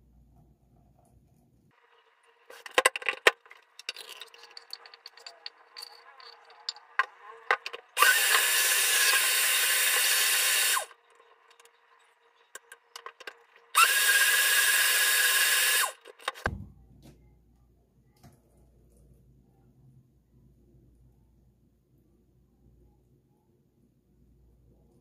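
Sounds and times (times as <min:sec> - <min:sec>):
blender motor whining: 0:07.7 - 0:11.0, 0:13.0 - 0:16.5.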